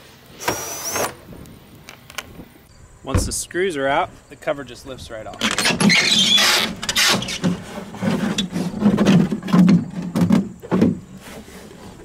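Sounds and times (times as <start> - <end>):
plastic cover scraping and knocking: 5.4 - 12.0.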